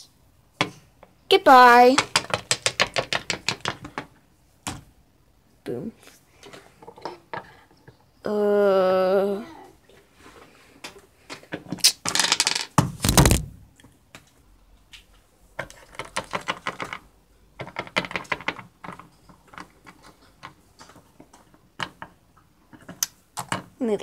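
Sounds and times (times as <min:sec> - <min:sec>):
figurines clattering: 0:01.5 - 0:04.8, 0:11.2 - 0:13.6
plastic figurines clicking on table: 0:01.9 - 0:04.1, 0:15.6 - 0:23.6.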